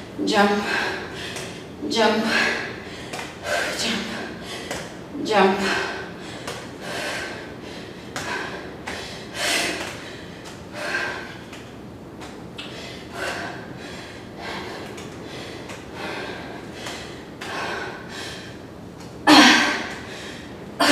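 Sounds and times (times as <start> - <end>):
woman breathing hard: 0.0 - 20.9.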